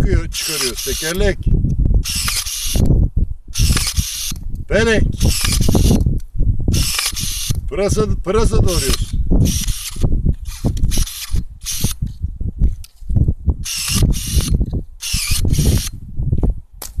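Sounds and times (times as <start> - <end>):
electric pruning shears cutting: 0.3 - 1.2, 2.1 - 2.8, 3.6 - 4.4, 5.2 - 6.1, 6.8 - 7.6, 8.7 - 12.0, 13.7 - 16.0.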